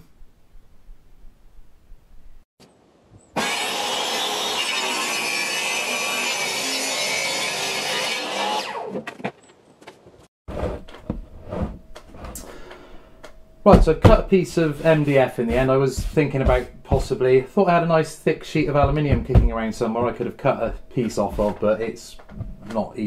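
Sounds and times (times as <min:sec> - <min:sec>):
power saw cutting board: 0:03.4 - 0:09.2
knocks and handling sounds: 0:08.9 - 0:17.5, 0:18.5 - 0:23.0.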